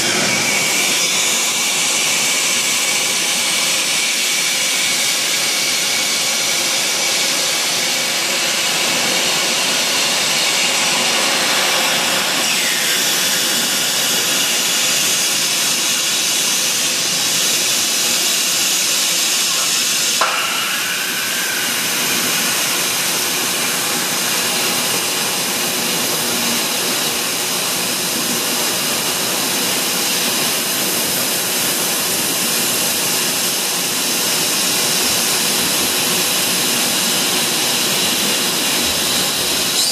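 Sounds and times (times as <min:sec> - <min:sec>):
machinery hiss and rush: 0:00.0 - 0:39.9
sharp knock: 0:20.2 - 0:22.8.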